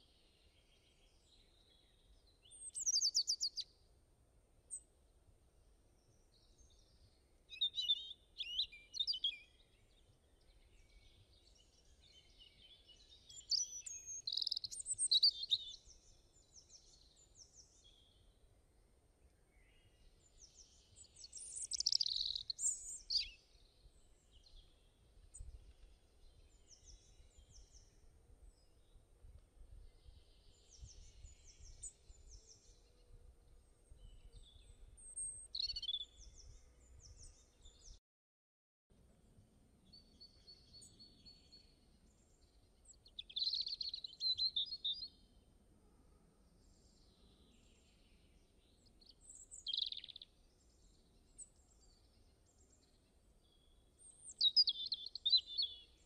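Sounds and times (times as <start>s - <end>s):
birds singing: 0.8s - 3.7s, 6.4s - 18.2s, 19.6s - 28.0s, 33.8s - 38.0s, 39.9s - 45.2s, 46.6s - 56.0s
birds chirping: 7.6s - 18.0s, 20.2s - 23.8s.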